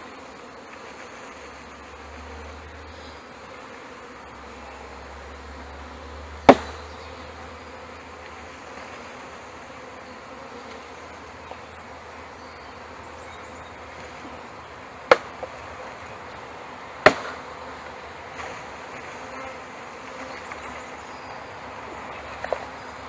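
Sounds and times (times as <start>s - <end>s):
bees buzzing: 0.0s - 23.0s
knocking on wooden box: 6.5s - 6.8s.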